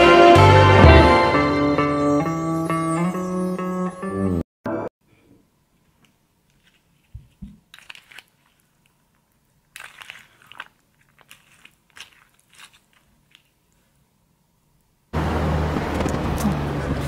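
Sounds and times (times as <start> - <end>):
spoon stirring crunchy cereal: 6.5 - 14.0.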